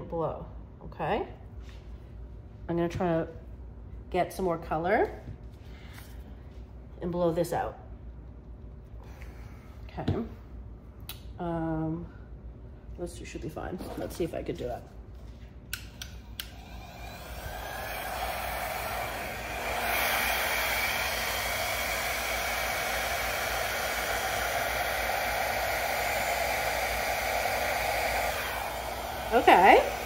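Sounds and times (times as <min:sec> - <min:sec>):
hair dryer switch clicks: 0:15.7 - 0:16.6
hair dryer blowing: 0:15.9 - 0:30.0.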